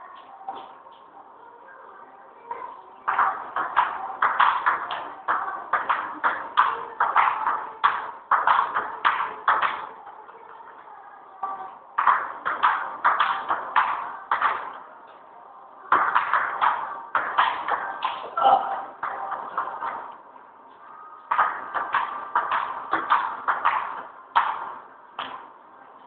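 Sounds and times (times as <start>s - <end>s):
ping pong ball hitting paddles: 3.1s - 9.9s, 12.0s - 14.8s, 15.9s - 20.2s, 21.3s - 25.5s
ball bouncing on table: 21.3s - 25.5s.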